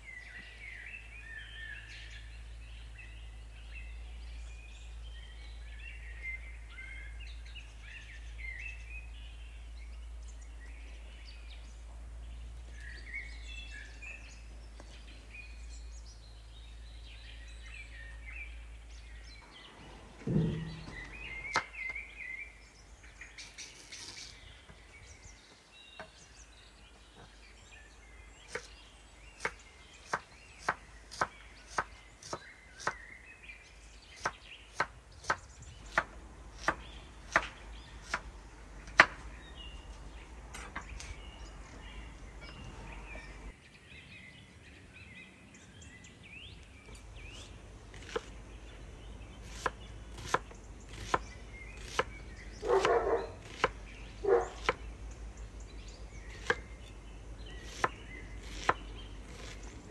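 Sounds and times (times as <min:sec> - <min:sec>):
knife chopping on cutting board: 0:52.7 - 0:53.8, 0:57.6 - 0:59.6.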